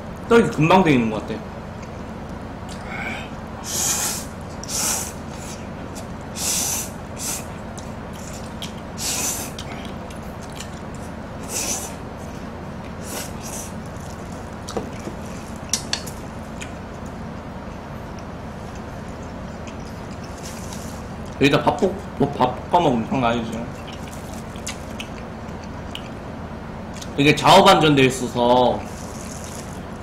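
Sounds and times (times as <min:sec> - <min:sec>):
noodles being slurped: 0:28.8 - 0:30.0.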